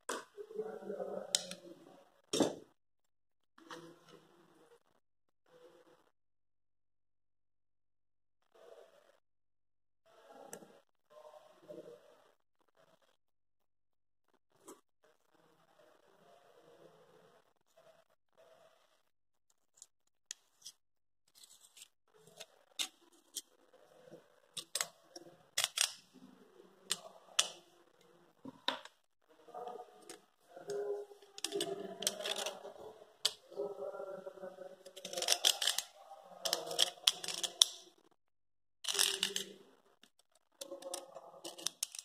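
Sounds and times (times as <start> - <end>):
plastic and metal scraping: 29.6 - 33.7.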